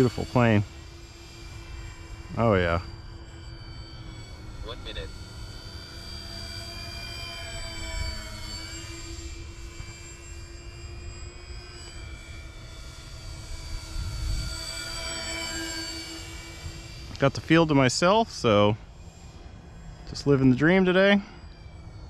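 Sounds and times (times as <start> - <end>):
electric model plane motor whine: 0.0 - 22.0
wind rumbling on microphone: 13.7 - 14.7.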